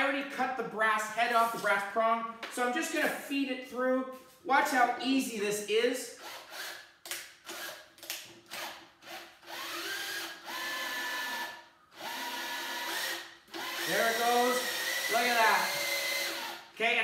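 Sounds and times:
drill running: 6.2s - 7.8s, 8.5s - 16.7s.

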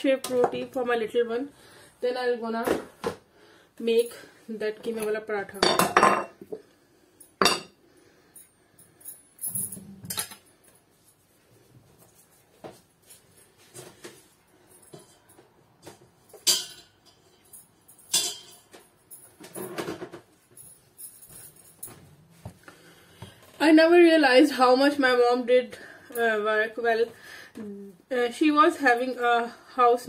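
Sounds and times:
utensils and dishes clattering: 7.4s - 7.7s, 16.4s - 20.3s.

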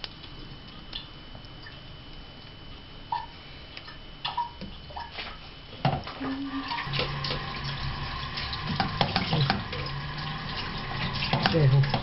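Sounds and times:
running tap water: 6.2s - 12.0s.

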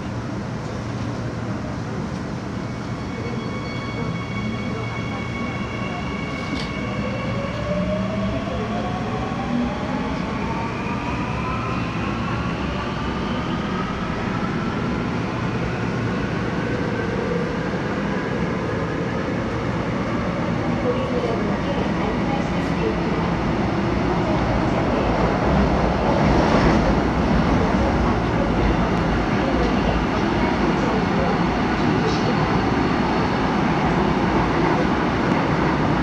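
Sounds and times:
subway train rumbling in tunnel: 0.0s - 36.0s.

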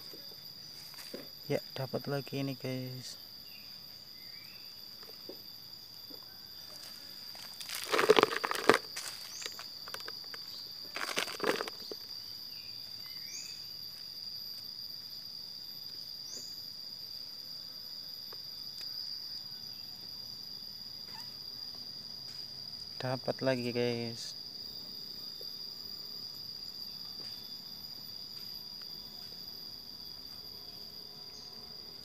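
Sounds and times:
high-pitched insect drone: 0.0s - 32.0s
scraping and rustling of soil: 6.7s - 12.2s.

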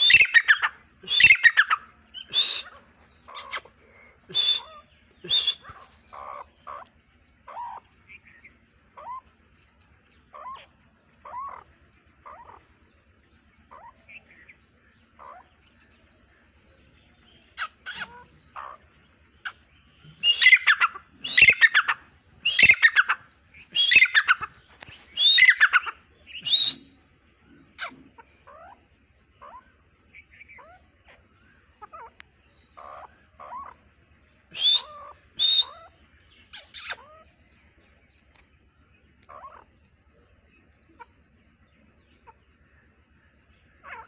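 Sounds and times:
francolin loud harsh calls: 0.0s - 9.6s, 10.2s - 12.9s, 13.6s - 37.6s, 39.2s - 44.0s
francolin soft clucks: 24.0s - 26.0s, 30.6s - 33.8s.

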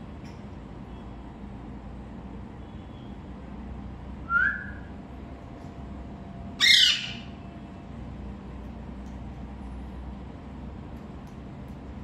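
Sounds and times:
parakeet squawking: 6.6s - 7.3s.

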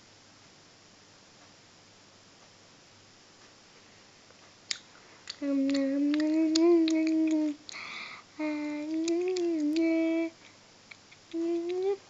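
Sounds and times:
mouth clicks: 4.6s - 12.0s
breathy hiss: 5.0s - 10.7s
girl humming: 5.4s - 10.4s, 11.3s - 12.0s.

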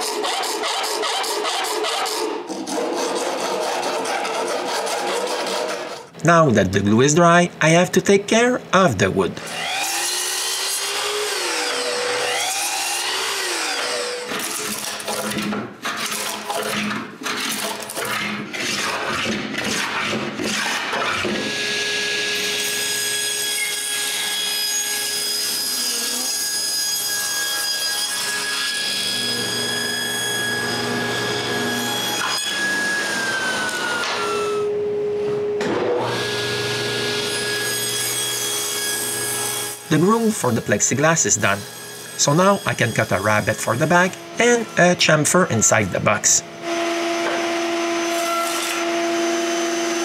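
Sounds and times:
table saw whining: 9.4s - 15.6s, 18.2s - 50.0s
miter saw making short cuts: 37.6s - 46.4s.

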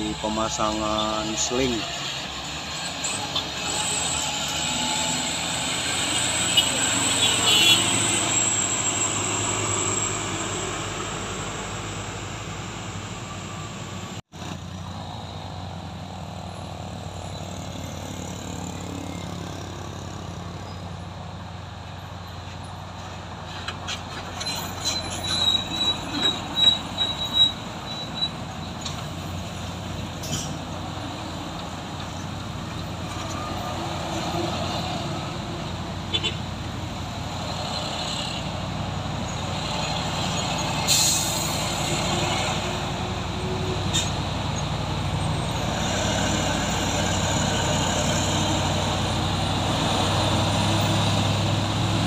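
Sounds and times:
high metallic squealing: 0.0s - 12.2s, 24.2s - 29.5s, 39.2s - 49.2s
diesel trucks rumbling: 0.0s - 52.0s.

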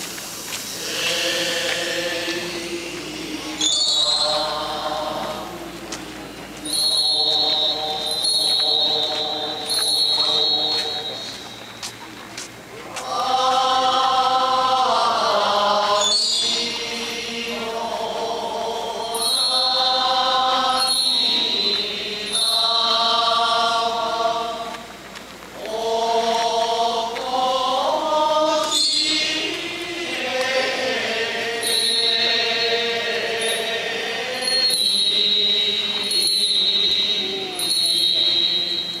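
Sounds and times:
group chanting a hymn: 0.0s - 39.0s
small hand bell ringing: 31.6s - 32.3s, 34.4s - 39.0s.

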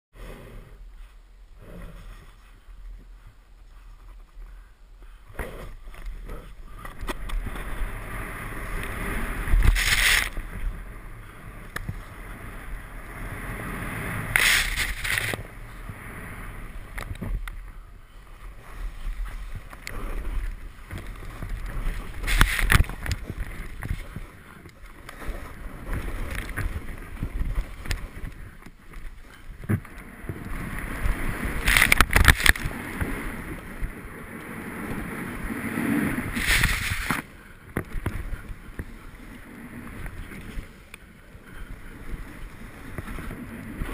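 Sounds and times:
wind rushing over microphone: 5.2s - 43.9s
snowboard scraping through snow: 5.4s - 17.4s, 18.2s - 24.4s, 25.1s - 28.3s, 29.2s - 37.3s, 41.7s - 43.9s
snow spraying: 7.6s - 11.0s, 12.1s - 16.8s, 34.6s - 37.2s.

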